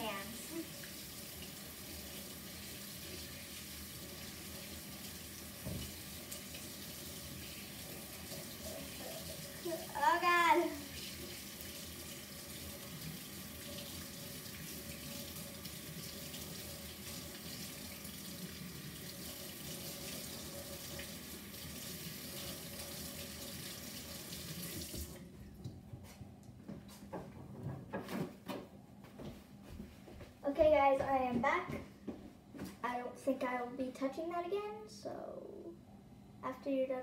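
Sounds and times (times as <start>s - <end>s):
tap water running into sink: 0.0s - 25.2s.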